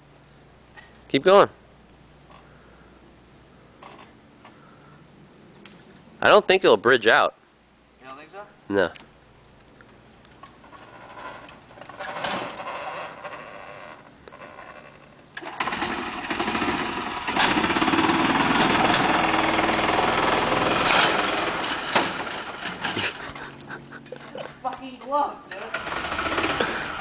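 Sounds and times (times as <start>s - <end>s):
golf cart engine revving: 10.6s - 24.4s, 25.5s - 27.0s.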